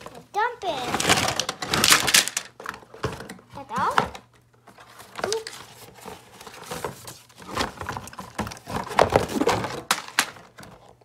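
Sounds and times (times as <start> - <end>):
cardboard box and paper handled: 4.7 - 9.9.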